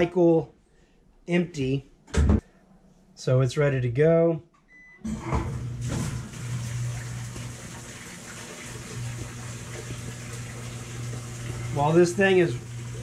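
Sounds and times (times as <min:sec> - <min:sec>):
washing machine low hum: 0:05.1 - 0:13.0
water rushing into drum: 0:05.1 - 0:13.0.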